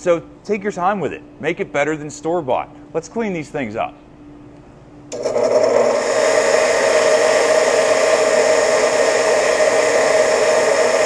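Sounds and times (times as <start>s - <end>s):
bench grinder motor running: 5.1s - 11.0s.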